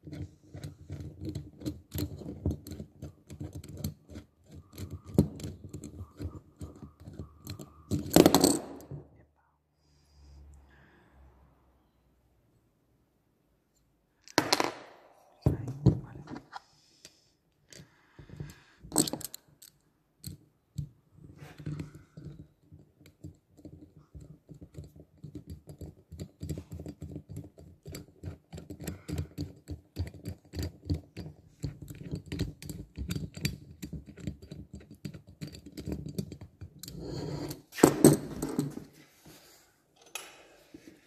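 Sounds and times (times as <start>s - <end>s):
screwdriver clicking and scraping: 0.0s - 9.0s, 17.7s - 38.9s.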